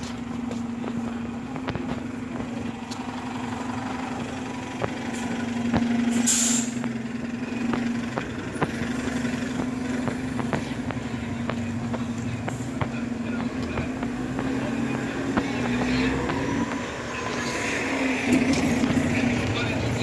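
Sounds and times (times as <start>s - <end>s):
footsteps clicking: 0.0s - 3.3s, 7.7s - 17.0s
bus engine humming: 0.0s - 20.0s
air brake hiss: 6.1s - 6.8s.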